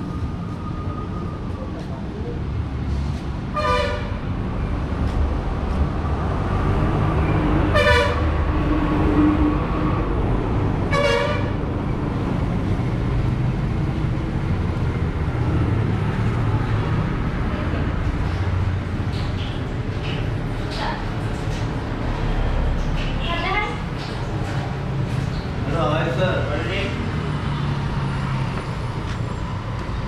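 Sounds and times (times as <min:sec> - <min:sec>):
road traffic rumble: 0:00.0 - 0:30.0
vehicle horns tooting: 0:03.5 - 0:04.2, 0:07.7 - 0:08.2, 0:10.9 - 0:11.6.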